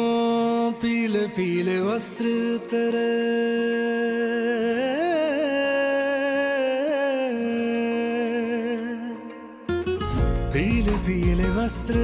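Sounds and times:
person singing a long wordless note: 0:00.0 - 0:09.8.

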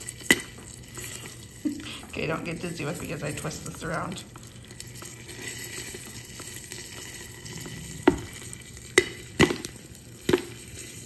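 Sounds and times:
butter sizzling: 0:00.0 - 0:11.0
popcorn popping: 0:00.0 - 0:11.0.

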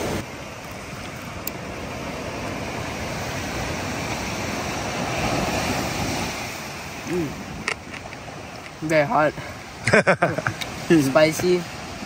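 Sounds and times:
steady rushing noise: 0:00.0 - 0:12.0.

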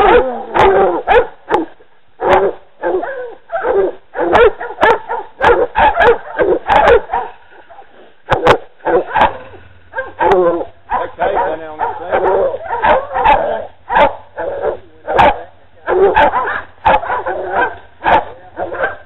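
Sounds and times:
dogs barking: 0:00.0 - 0:19.0.

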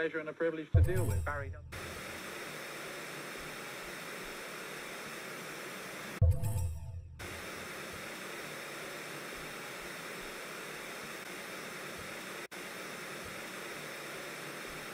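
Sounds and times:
deep boom: 0:00.8 - 0:01.7
static hiss: 0:01.7 - 0:06.2, 0:07.2 - 0:14.9.

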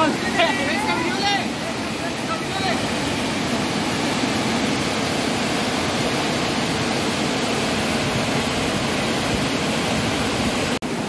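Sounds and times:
waterfall rushing over rocks: 0:00.0 - 0:11.0.

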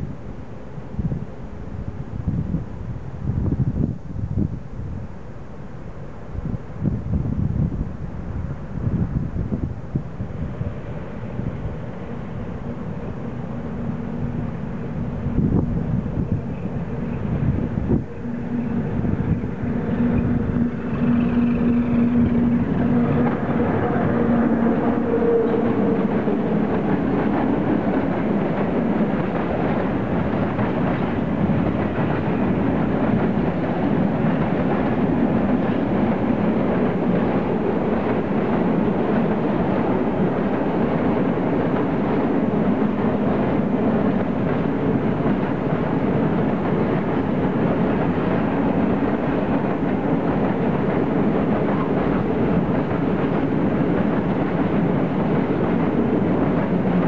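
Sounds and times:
train wheels rolling on rails: 0:06.4 - 0:57.0.

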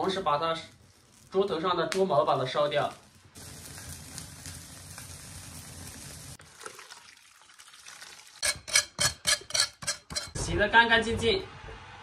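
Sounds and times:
wood fire rushing and crackling: 0:00.0 - 0:06.4
water pouring from kettle: 0:03.4 - 0:08.4.

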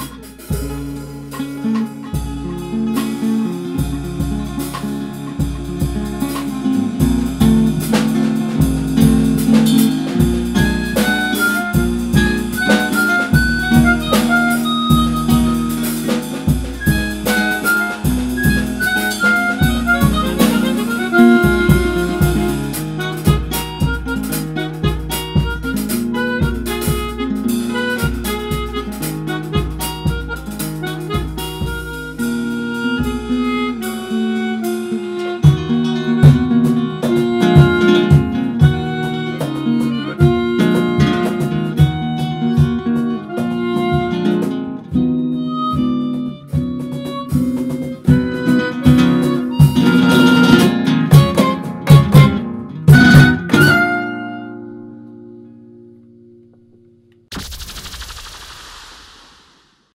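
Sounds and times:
drums beat: 0:00.0 - 0:54.1
harmonica melody: 0:00.0 - 0:55.0
acoustic guitar: 0:00.0 - 0:58.0.

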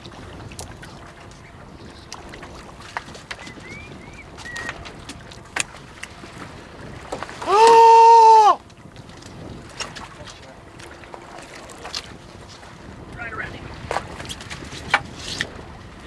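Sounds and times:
man yelling: 0:07.4 - 0:08.6.

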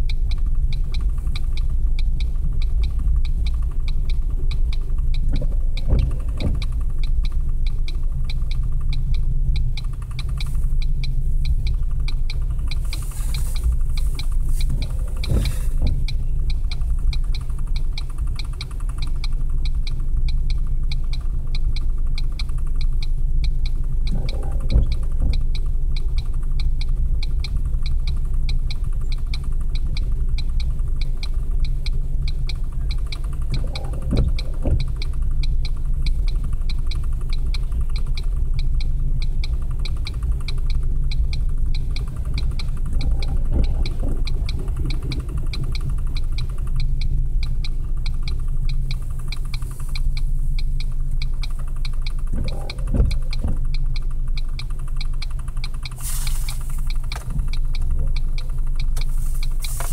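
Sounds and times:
fast even ticking of wheels: 0:00.0 - 0:59.9
freight train rumbling: 0:39.6 - 0:50.0.

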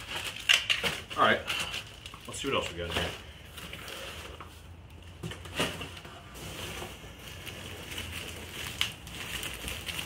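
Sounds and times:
bubble wrap rustling: 0:00.0 - 0:10.0
hands rummaging through packing peanuts: 0:00.0 - 0:10.0
sharp crackles: 0:07.1 - 0:10.0.

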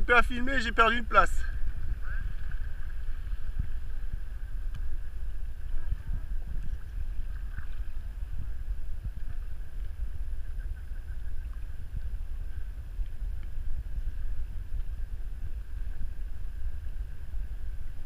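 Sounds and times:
water rushing along hull: 0:00.0 - 0:18.0
wind buffeting microphone: 0:00.0 - 0:18.0.

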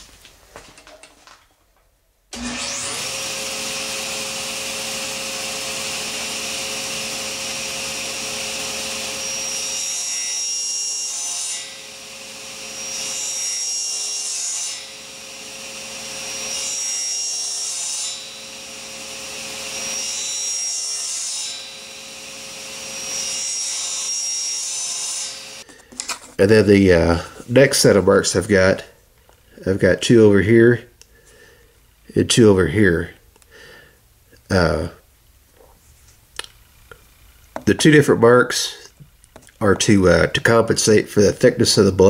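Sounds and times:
table saw running: 0:02.3 - 0:25.7, 0:36.9 - 0:38.8
saw cutting wood: 0:02.3 - 0:28.0, 0:37.6 - 0:42.0.

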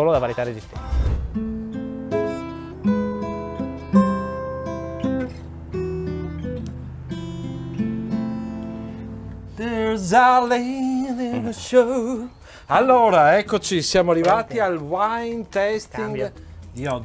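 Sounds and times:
acoustic guitar playing: 0:00.0 - 0:17.0
man singing wavering: 0:09.6 - 0:13.2.

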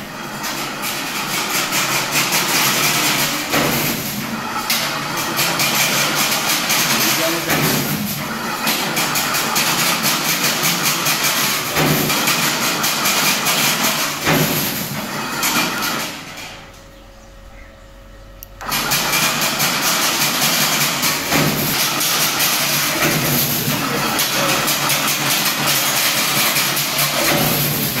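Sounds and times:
faint hum: 0:16.4 - 0:18.6.

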